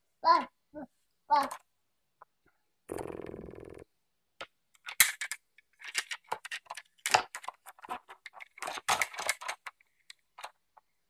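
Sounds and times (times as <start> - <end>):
plastic toys clattering: 4.7 - 10.9.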